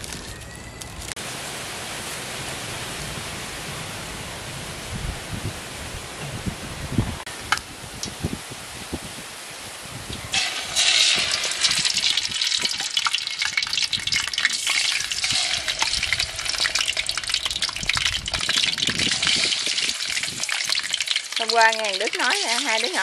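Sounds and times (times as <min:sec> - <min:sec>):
chicken frying in hot oil: 0:10.0 - 0:23.0.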